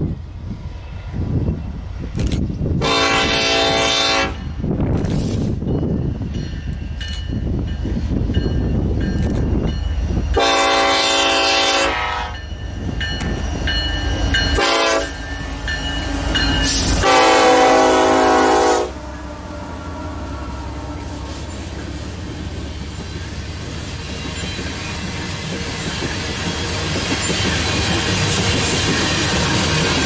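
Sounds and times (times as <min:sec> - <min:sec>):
diesel locomotive engines rumbling: 0:00.0 - 0:30.0
multi-note train air horn: 0:02.8 - 0:04.5, 0:10.4 - 0:12.4, 0:14.6 - 0:15.2, 0:16.9 - 0:21.5.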